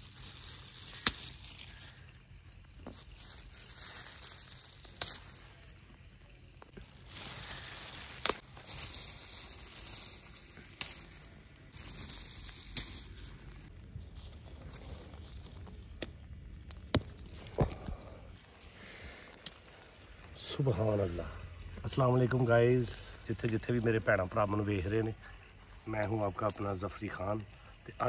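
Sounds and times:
plastic glove rustling: 0.0s - 18.7s
leaves rustling: 0.0s - 28.0s
okra pods snapping: 0.1s - 2.2s, 2.8s - 5.7s, 6.6s - 13.7s, 14.7s - 18.2s, 19.1s - 19.8s, 23.3s - 23.8s.

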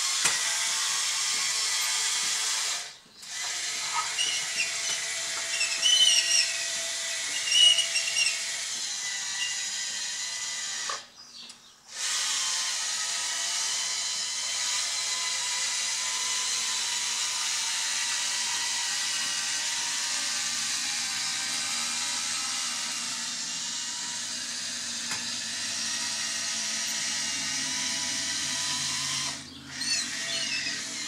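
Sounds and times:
electric motors and gearboxes whining: 0.0s - 31.0s
high-pitched squeals: 3.8s - 6.6s, 7.3s - 8.4s.

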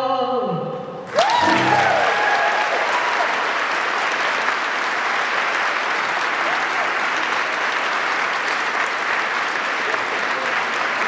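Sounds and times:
audience cheering: 1.1s - 8.2s
audience applause: 1.1s - 11.0s
choir singing: 1.4s - 2.2s.

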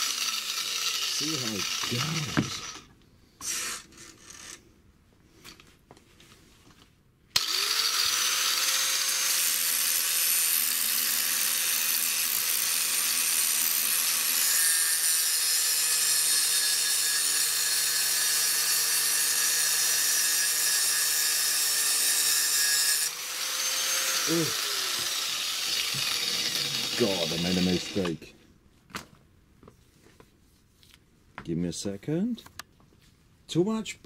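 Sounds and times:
angle grinder cutting steel: 0.0s - 4.6s, 7.4s - 28.3s.

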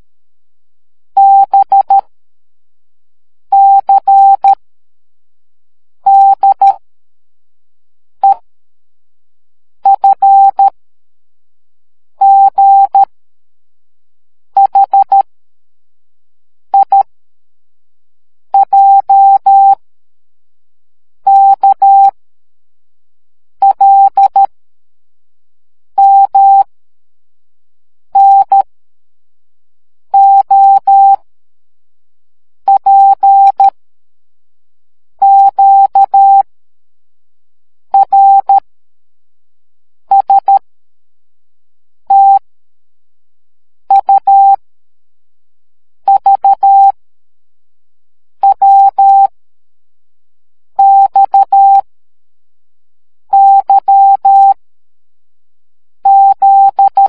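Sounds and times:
morse code beeps: 42.1s - 42.4s.

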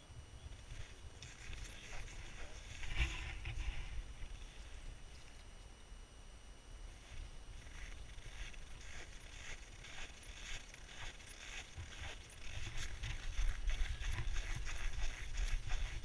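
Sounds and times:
crunching and rustling: 0.6s - 5.8s, 7.0s - 16.0s.

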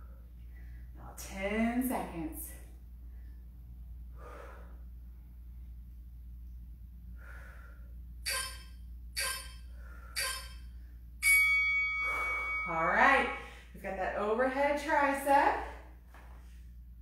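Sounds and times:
woman breathing hard: 3.0s - 5.1s, 7.1s - 8.1s, 9.7s - 10.2s, 12.0s - 12.7s
loud electronic timer beep: 8.2s - 12.8s
sharp exhales: 12.0s - 12.7s.

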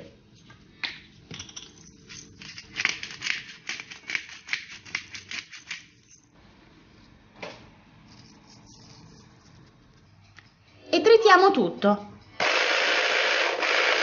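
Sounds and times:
shaker jar rattling: 8.1s - 9.7s.

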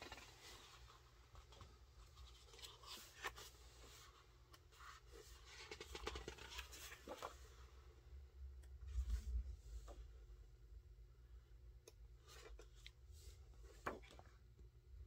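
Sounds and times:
book pages turning: 0.0s - 7.6s.

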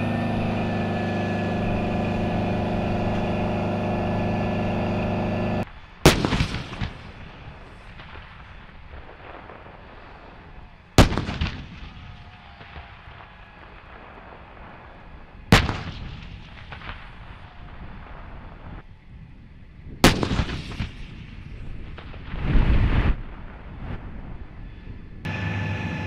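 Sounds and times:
howitzer shots with echo: 6.0s - 10.1s, 11.0s - 12.0s, 15.5s - 17.4s, 20.0s - 22.2s.

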